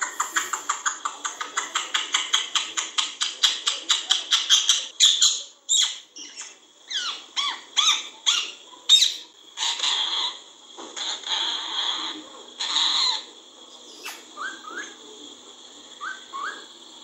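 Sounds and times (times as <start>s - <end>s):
parakeet chirping: 0.0s - 15.0s, 15.9s - 16.8s
parakeet squawking: 1.6s - 13.3s.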